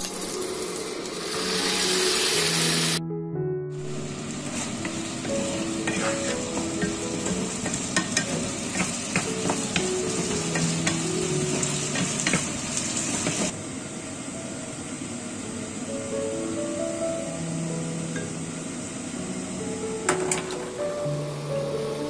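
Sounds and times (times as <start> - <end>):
vegetables sizzling in a frying pan: 0.0 - 3.0, 3.8 - 13.5, 18.0 - 22.0
quiet background music: 0.0 - 13.5, 14.3 - 22.0
wooden spatula scraping a pan: 4.3 - 13.5.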